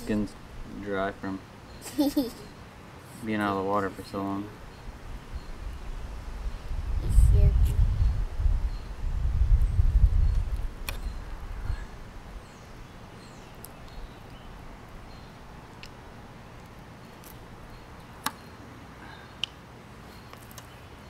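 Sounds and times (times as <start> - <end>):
faint bird chirps: 1.6 - 2.7.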